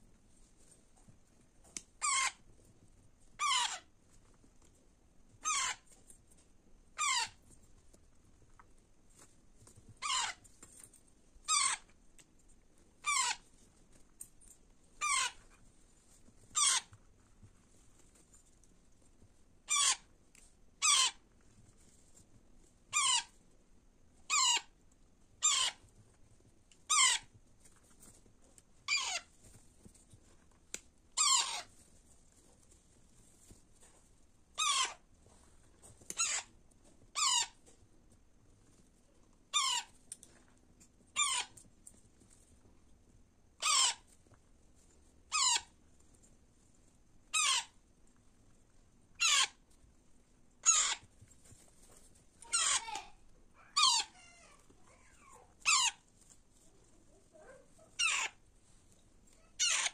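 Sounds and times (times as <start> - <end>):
parakeet chicks squawking: 2.0 - 2.4, 3.4 - 3.9, 5.4 - 5.8, 7.0 - 7.4, 10.0 - 10.4, 11.5 - 11.8, 13.0 - 13.4, 15.0 - 15.4, 16.6 - 16.9, 19.7 - 20.1, 20.8 - 21.2, 23.0 - 23.3, 24.3 - 24.7, 25.4 - 25.8, 26.9 - 27.3, 28.9 - 29.3, 31.2 - 31.7, 34.6 - 35.0, 36.1 - 36.5, 37.2 - 37.6, 39.6 - 39.9, 41.2 - 41.6, 43.6 - 44.1, 45.3 - 45.7, 47.3 - 47.8, 49.2 - 49.6, 50.6 - 51.0, 52.4 - 54.5, 55.1 - 56.0, 57.4 - 58.4, 59.4 - 59.9.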